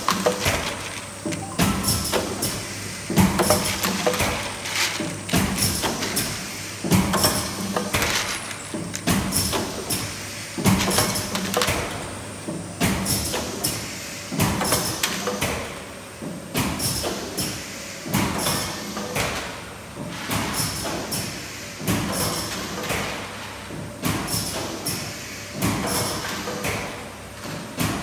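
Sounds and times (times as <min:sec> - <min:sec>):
pneumatic cylinders clacking: 0:00.0 - 0:15.7.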